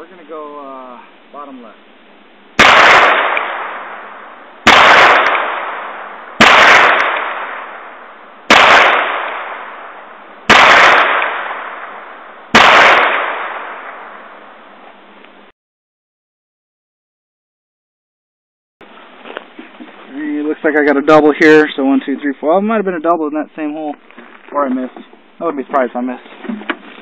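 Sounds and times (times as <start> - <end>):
revolver gunshots: 2.6 - 14.5.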